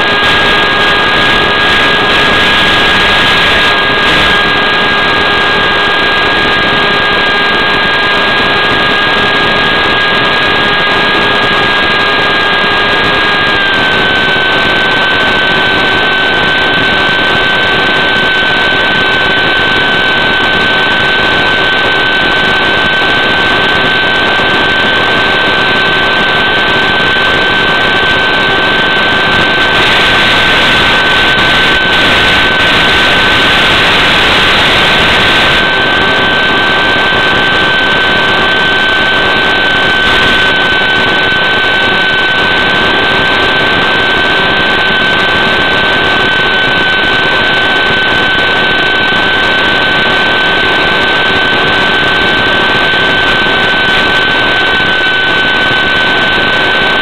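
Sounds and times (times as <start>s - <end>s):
radio link hiss: 0.0s - 7.1s, 29.4s - 43.8s
electric motor and propeller whine: 0.0s - 57.0s.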